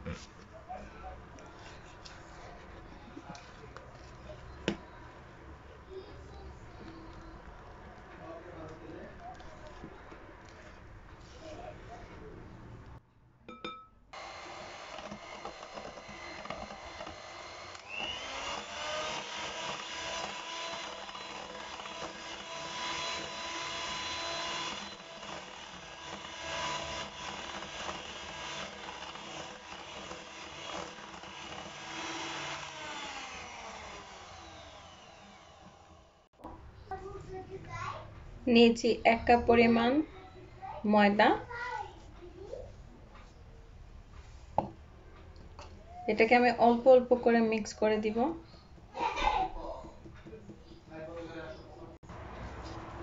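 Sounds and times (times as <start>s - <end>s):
electric hand mixer whining: 14.2s - 36.3s.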